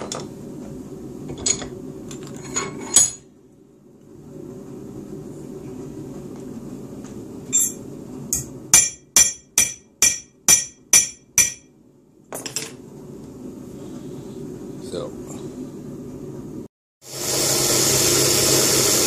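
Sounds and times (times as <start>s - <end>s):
hammer striking metal: 7.6s - 11.7s.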